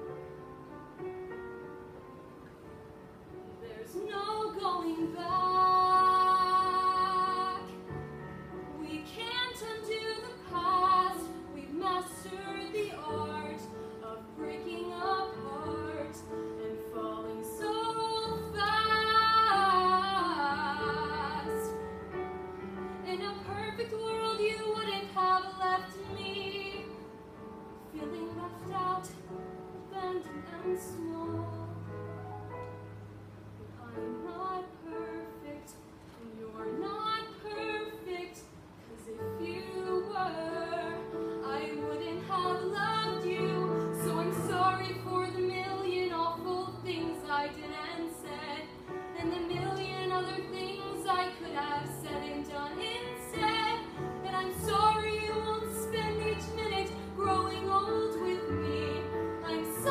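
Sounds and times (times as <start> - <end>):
girl singing: 8.8 - 21.8, 33.8 - 59.9.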